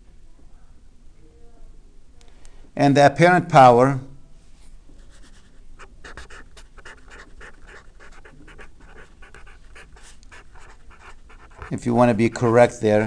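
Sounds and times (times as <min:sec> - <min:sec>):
marker squeaking on paper: 0:05.1 - 0:12.7.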